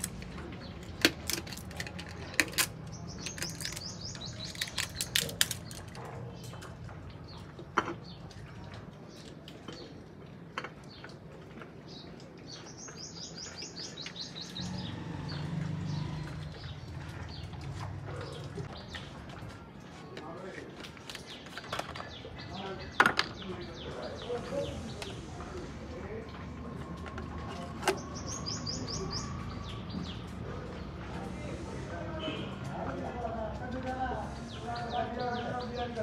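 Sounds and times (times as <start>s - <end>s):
bird chirping trills: 2.8s - 6.6s, 27.9s - 30.3s.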